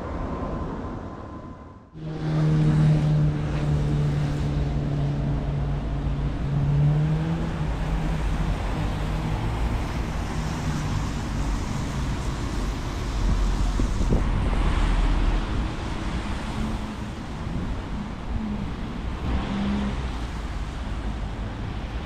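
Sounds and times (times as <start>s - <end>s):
low rumble of traffic: 0.0s - 22.0s.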